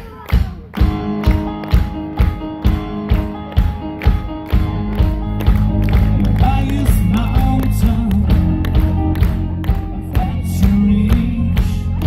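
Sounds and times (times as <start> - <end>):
bass guitar: 0.0 - 12.0
drum kit beat: 0.0 - 12.0
electric guitar: 0.7 - 12.0
male singer amplified vocals: 6.0 - 9.0, 9.9 - 12.0.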